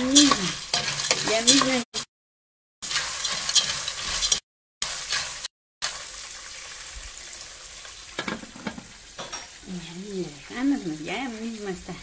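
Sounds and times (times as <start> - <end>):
sizzle: 0.0 - 2.1, 2.8 - 12.0
spoon stirring kernels in metal pot: 0.0 - 2.1, 2.8 - 5.4.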